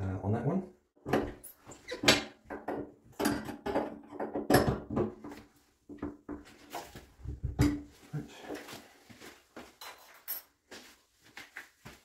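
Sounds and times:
metal fittings knocking and scraping: 0:01.1 - 0:05.4.

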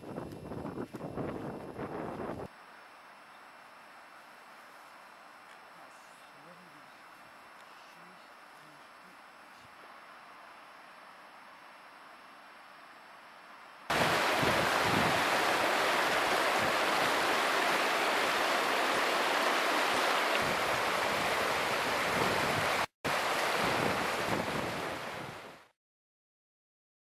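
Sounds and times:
water rushing over boulders: 0:13.9 - 0:25.7.

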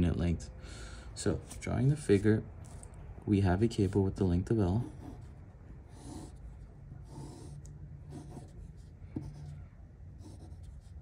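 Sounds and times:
pencil scratching on paper: 0:04.7 - 0:11.0.

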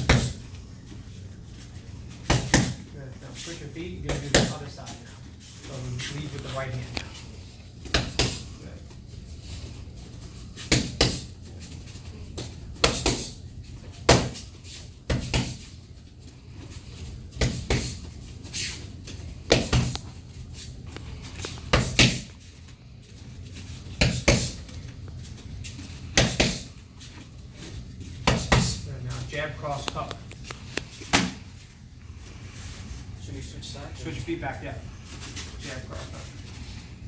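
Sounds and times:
punches slapping focus mitts: 0:00.0 - 0:00.4, 0:02.2 - 0:02.9, 0:07.9 - 0:08.5, 0:10.6 - 0:11.3, 0:15.1 - 0:15.6, 0:19.4 - 0:20.1, 0:21.7 - 0:22.3, 0:24.0 - 0:24.6, 0:26.1 - 0:26.7, 0:28.2 - 0:28.8.

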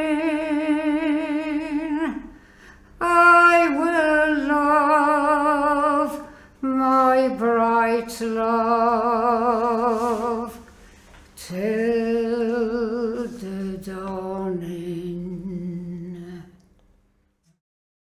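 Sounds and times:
person singing unaccompanied: 0:00.0 - 0:02.3, 0:03.0 - 0:10.6, 0:11.4 - 0:16.6
singer breathing: 0:02.3 - 0:03.0, 0:06.2 - 0:06.6.

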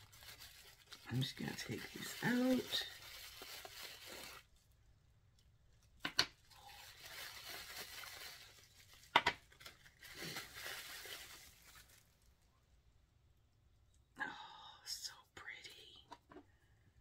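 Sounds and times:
packaging crinkling and tearing: 0:00.0 - 0:04.7, 0:06.4 - 0:12.3.

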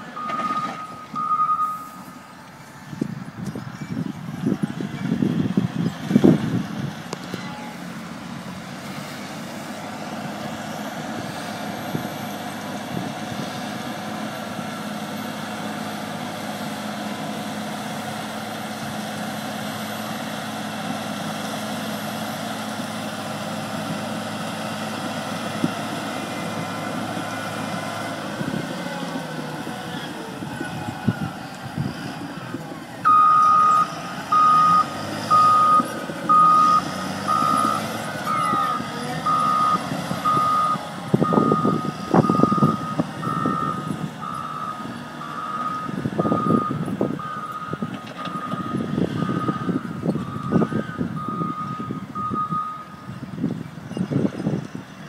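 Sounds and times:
grader diesel engine running: 0:00.0 - 0:55.0.

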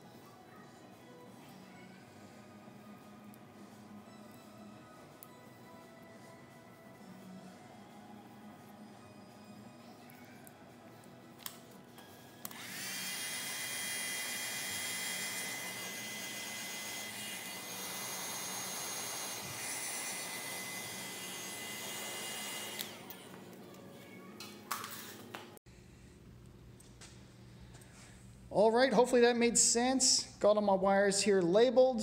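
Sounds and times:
heat gun fan whining: 0:10.8 - 0:25.4.

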